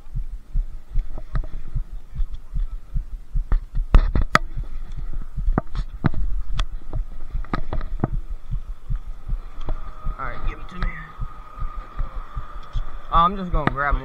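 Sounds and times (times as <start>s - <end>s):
low thumping: 0.0s - 14.0s
sharp clicks and knocks: 3.4s - 9.8s.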